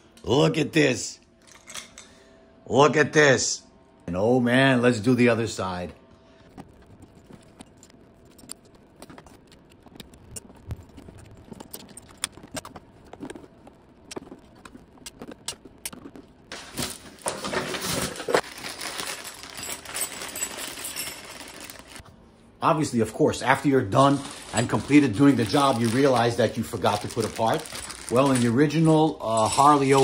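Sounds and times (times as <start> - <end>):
plastic bag crinkling: 6.5 - 22.0, 23.5 - 30.0.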